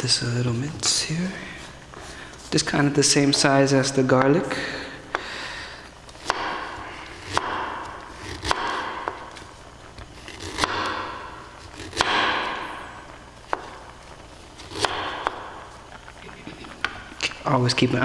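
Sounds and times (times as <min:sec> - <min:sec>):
knife chopping on wooden board: 0:06.2 - 0:09.4, 0:10.4 - 0:12.7, 0:13.5 - 0:13.8, 0:14.6 - 0:15.6.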